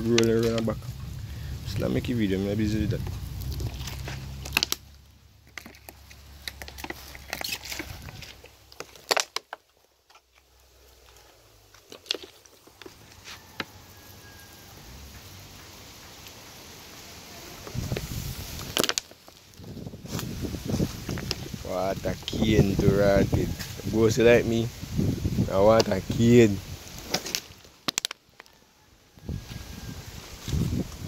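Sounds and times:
handling clicks and crackles: 0.0 - 1.2, 2.8 - 13.8, 17.6 - 20.3, 26.9 - 28.5
low rumble: 0.0 - 6.4.

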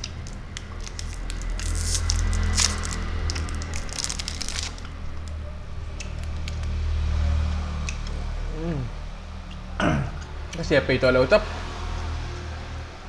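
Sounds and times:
plastic wrapper crinkling: 0.0 - 5.4.

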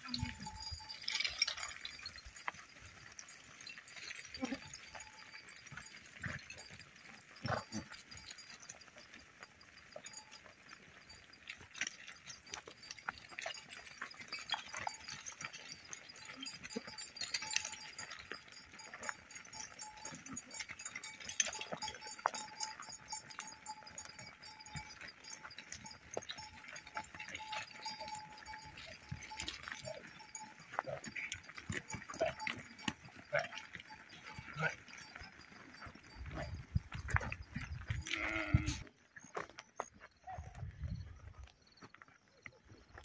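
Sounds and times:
goats and sheep bleating: 0.0 - 39.5
animal bells clinking: 0.0 - 43.0
herd moving about: 0.0 - 43.0.

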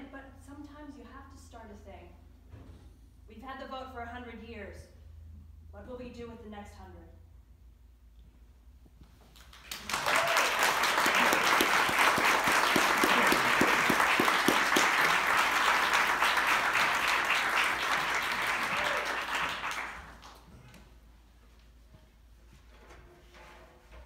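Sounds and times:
audience applauding: 9.4 - 20.6.

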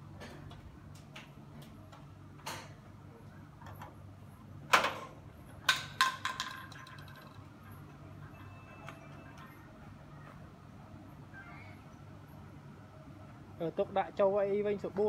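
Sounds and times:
faint steady hum: 0.0 - 15.0
plastic bottle bouncing on tiled floor: 5.7 - 7.3.

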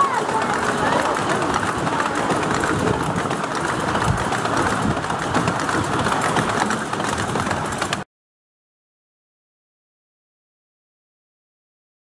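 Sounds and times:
miniature train wheels clattering: 0.0 - 8.0.

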